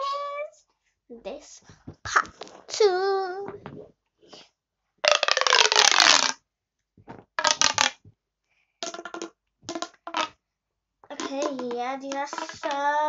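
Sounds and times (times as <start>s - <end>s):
plastic pop tube zipping clicks: 5.1s - 6.4s, 7.1s - 8.0s, 8.8s - 10.4s, 11.1s - 12.9s.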